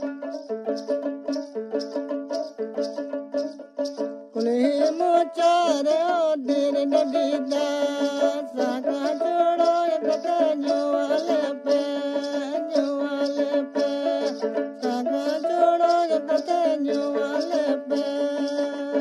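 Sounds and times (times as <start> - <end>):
instrumental accompaniment: 0.0 - 19.0
people singing: 4.4 - 19.0.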